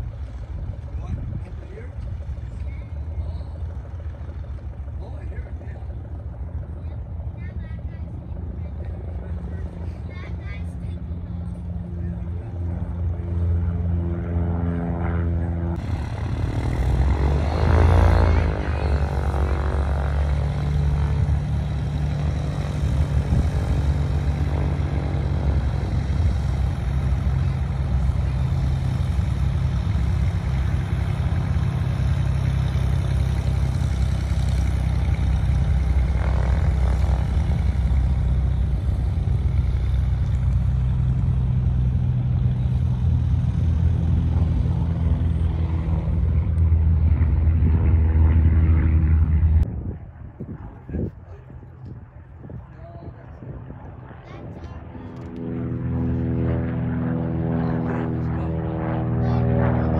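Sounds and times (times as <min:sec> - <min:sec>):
propeller airplane engines droning: 0:00.0 - 0:59.9.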